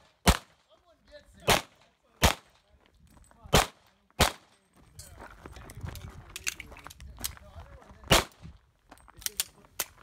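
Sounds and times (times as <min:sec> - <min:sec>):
handgun shots: 0:01.4 - 0:02.5, 0:03.5 - 0:04.5.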